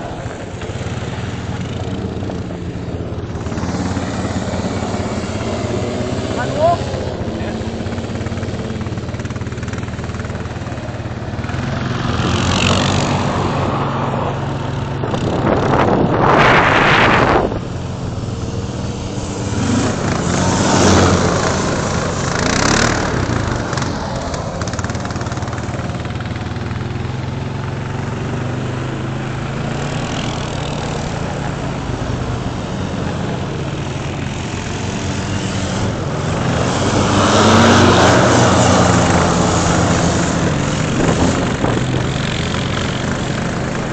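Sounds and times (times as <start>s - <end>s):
atv engine revving: 0.0s - 43.9s
rushing noise of sliding: 11.8s - 25.9s.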